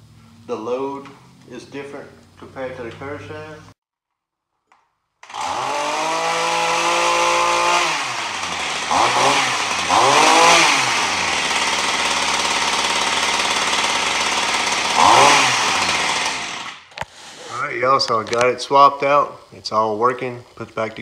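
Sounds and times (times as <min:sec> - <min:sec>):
small two-stroke engine revving: 0:05.2 - 0:16.9.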